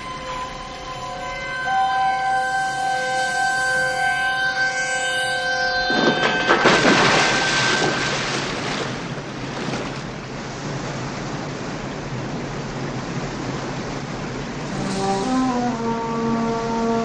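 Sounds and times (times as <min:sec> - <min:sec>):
held musical chord: 0:00.0 - 0:05.9, 0:14.7 - 0:17.0
water pouring over cascade: 0:06.1 - 0:10.0.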